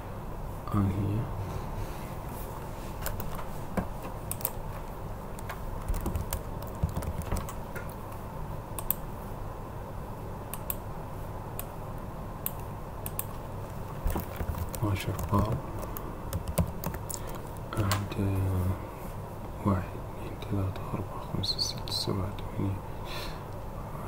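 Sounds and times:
low background hum: 0.0 - 24.0
computer keyboard clicks: 3.0 - 3.4, 4.3 - 4.6, 5.4 - 8.0, 8.8 - 9.0, 12.5 - 13.3, 14.0 - 18.0.

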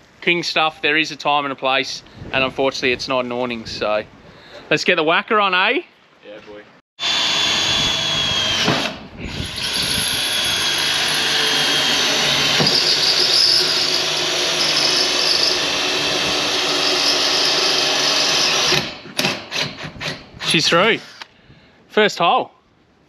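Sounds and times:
cordless drill running: 7.0 - 18.8, 20.8 - 21.3
drill bit screeching on metal: 7.0 - 18.8, 20.4 - 21.3.

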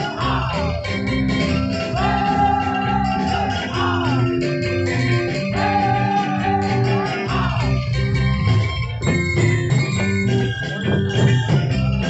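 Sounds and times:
person singing: 0.0 - 0.8, 1.9 - 4.5, 5.5 - 7.8
drums: 0.0 - 12.0
rattling hand percussion: 0.0 - 12.0.

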